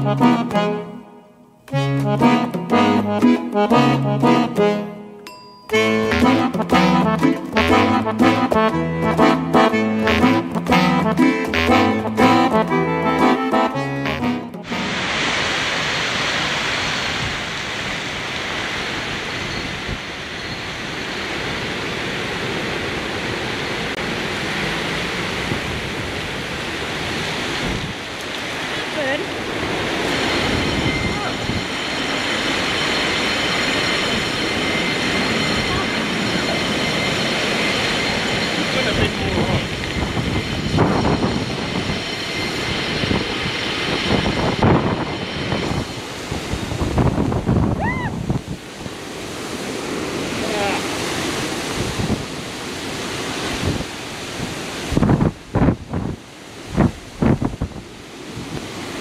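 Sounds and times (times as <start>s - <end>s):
wind rushing on microphone: 14.8s - 59.0s
vehicle noise: 19.8s - 46.1s.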